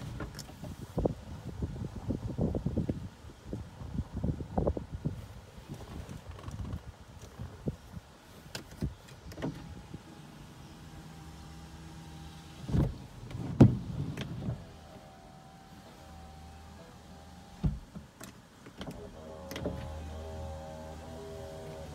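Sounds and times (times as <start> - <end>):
electric window motor whirring: 9.2 - 18.0, 18.6 - 21.9.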